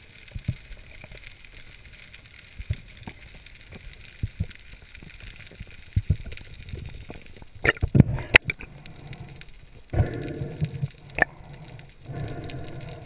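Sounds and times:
steady underwater hiss: 0.0s - 13.0s.

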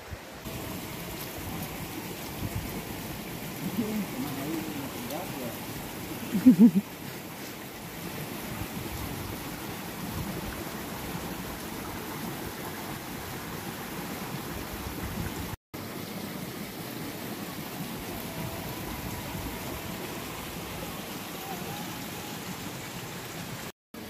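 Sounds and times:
stream flowing over stones: 0.0s - 24.0s.

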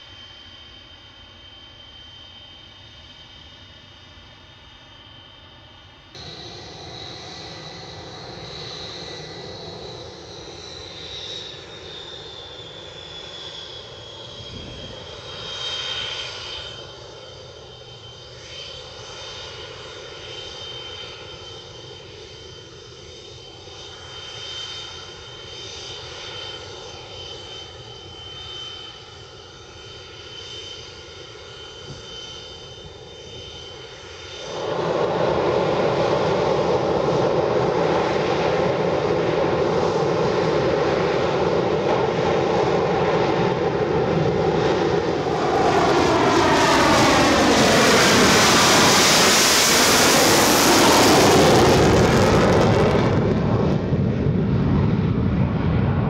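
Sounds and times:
jet engine rush and turbine whine: 0.0s - 56.0s.

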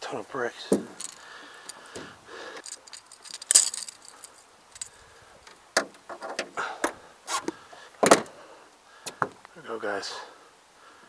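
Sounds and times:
fishing tackle jingling: 0.8s - 5.1s.

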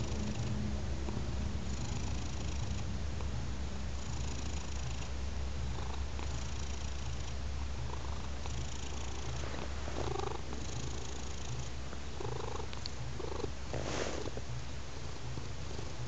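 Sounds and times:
cat purring: 0.0s - 16.0s.

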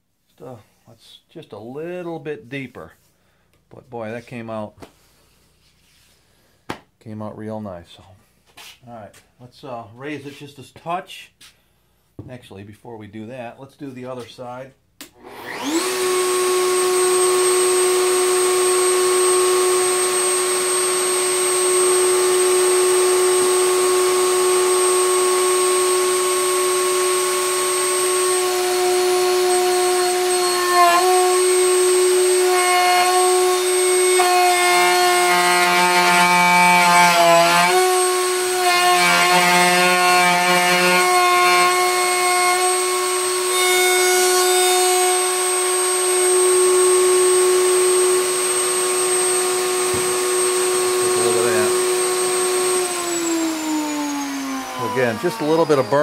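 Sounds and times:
router bit cutting wood: 15.2s - 56.0s
router whining: 15.2s - 56.0s.

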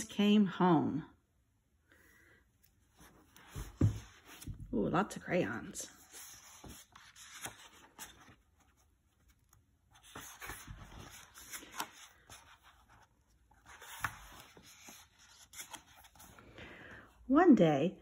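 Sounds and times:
book pages turning: 2.6s - 4.6s, 5.6s - 16.6s.

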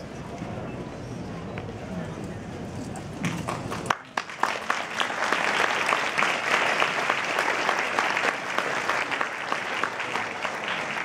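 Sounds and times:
audience applauding: 3.8s - 11.0s.

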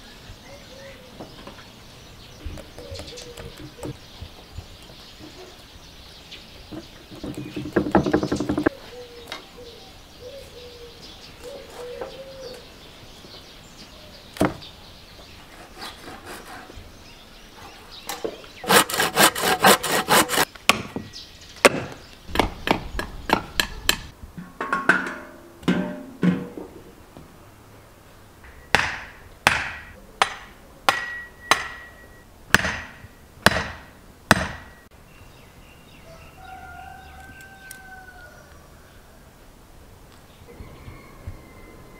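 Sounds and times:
handsaw cutting wood: 15.4s - 16.8s, 18.6s - 20.5s.

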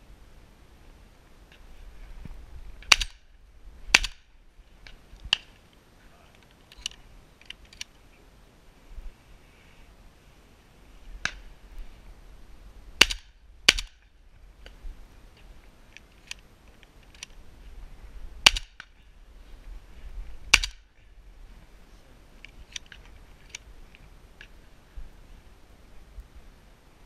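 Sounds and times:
shotgun shots: 2.9s - 3.2s, 3.9s - 4.3s, 13.0s - 14.0s, 18.4s - 18.8s
faint sharp cracks: 11.2s - 11.5s.

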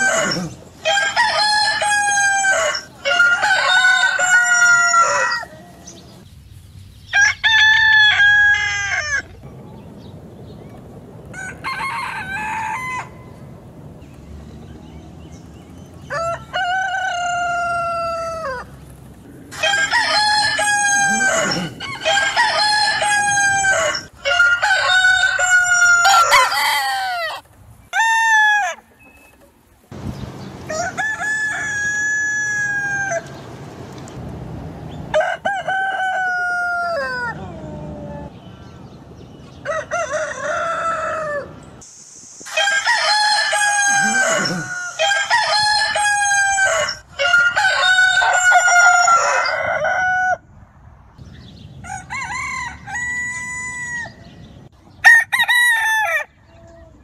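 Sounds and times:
roosters crowing: 0.0s - 6.3s, 7.0s - 9.5s, 11.2s - 34.0s, 34.7s - 41.8s, 42.4s - 50.6s, 51.8s - 57.0s.

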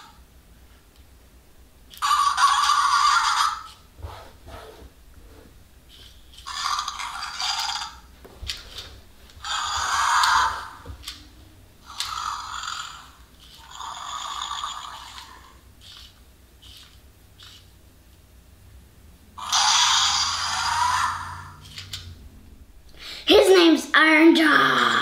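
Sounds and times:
toy speaker electronic growls: 1.9s - 3.9s, 6.0s - 8.1s, 8.7s - 11.2s, 11.8s - 17.6s, 19.4s - 22.1s.

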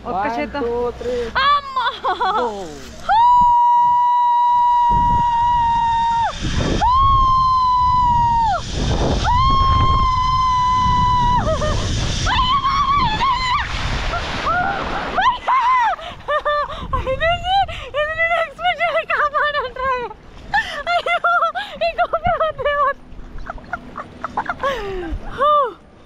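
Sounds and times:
woman screaming: 3.1s - 13.8s, 14.4s - 19.9s
wind rushing over microphone: 3.1s - 18.8s.

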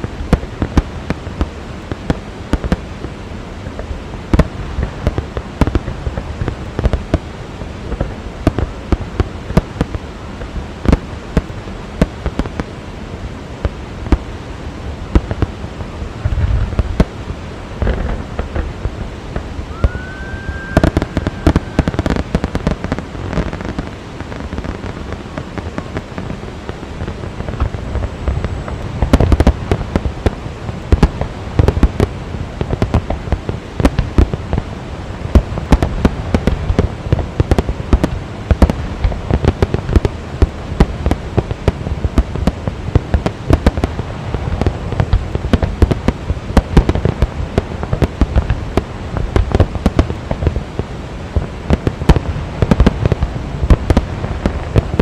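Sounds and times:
fireworks bangs and crackling: 0.0s - 55.0s
firework whistle rising: 19.6s - 22.9s.

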